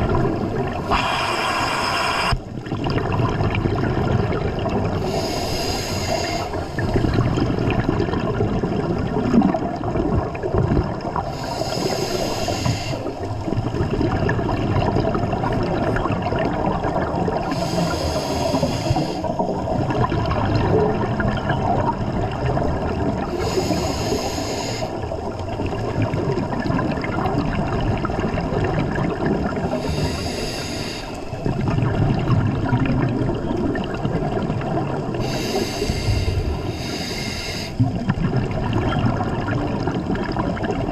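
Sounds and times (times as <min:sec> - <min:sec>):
water and bubbles rumbling: 0:00.0 - 0:40.9
regulator breath hiss: 0:00.9 - 0:02.4, 0:05.0 - 0:06.9, 0:11.4 - 0:13.2, 0:17.5 - 0:19.3, 0:23.4 - 0:25.0, 0:29.8 - 0:31.3, 0:35.2 - 0:37.8.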